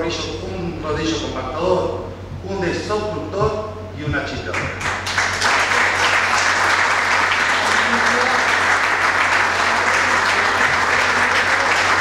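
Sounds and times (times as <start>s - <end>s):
audience applauding: 4.8s - 12.0s.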